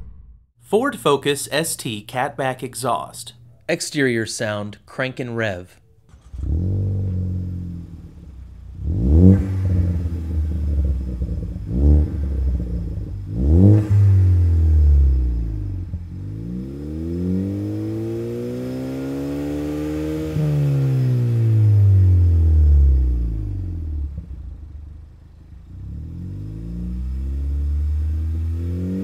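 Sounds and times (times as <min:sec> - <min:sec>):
car engine starting and revving: 0:05.9 - 0:29.0.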